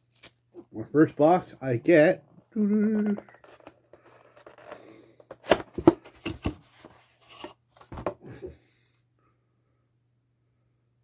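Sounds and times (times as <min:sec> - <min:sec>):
cardboard and plastic rustling: 0:02.9 - 0:08.2.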